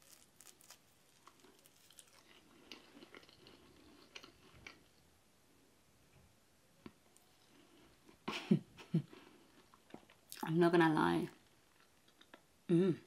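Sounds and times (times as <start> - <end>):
person chewing food: 0.0 - 5.0, 8.8 - 10.4.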